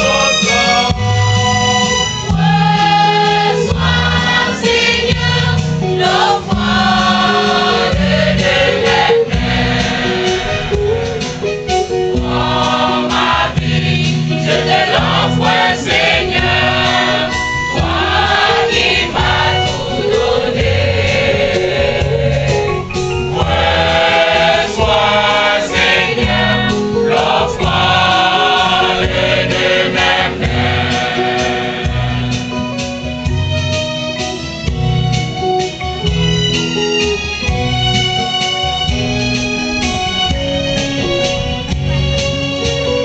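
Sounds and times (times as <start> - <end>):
choir singing a hymn: 0.0 - 33.4
instrumental accompaniment: 0.0 - 43.0.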